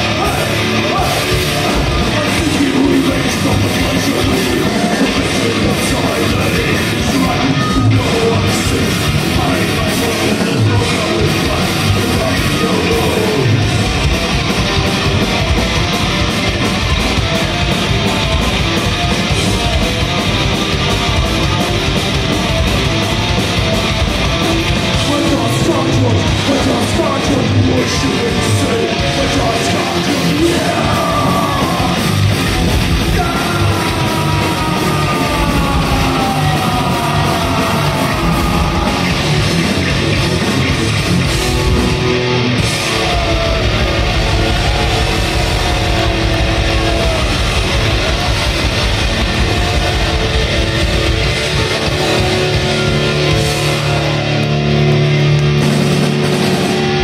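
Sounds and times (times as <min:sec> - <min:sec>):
heavy metal band playing live: 0:00.0 - 0:57.0
high sliding guitar notes: 0:27.0 - 0:57.0.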